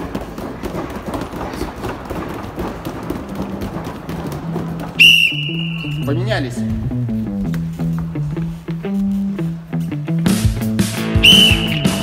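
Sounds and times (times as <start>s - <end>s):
fists striking padded shields: 0.0s - 5.3s
background music: 4.2s - 12.0s.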